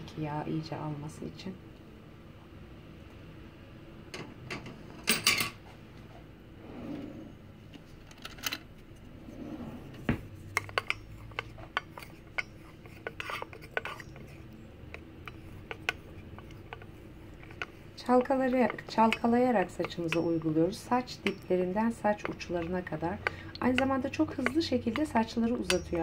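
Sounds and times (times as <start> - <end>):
wooden spoon scraping a saucepan: 9.0 - 26.0.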